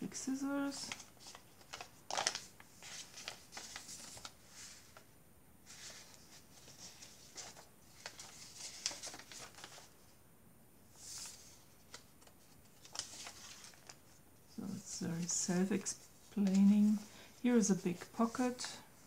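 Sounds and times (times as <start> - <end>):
paper pages rustling: 0.6 - 10.0, 10.9 - 19.0.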